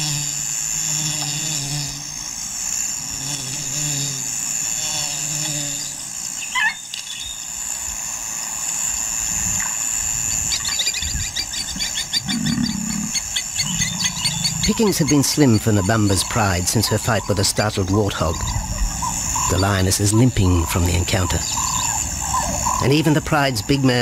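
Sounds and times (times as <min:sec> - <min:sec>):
high-pitched insect drone: 0:00.0 - 0:24.0
rapid chattering calls: 0:09.6 - 0:24.0.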